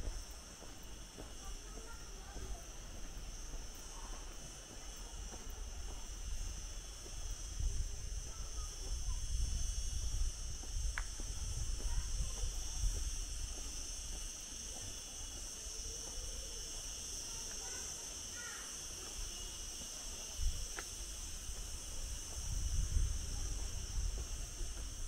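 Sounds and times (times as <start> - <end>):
high-pitched insect drone: 0.0 - 25.0.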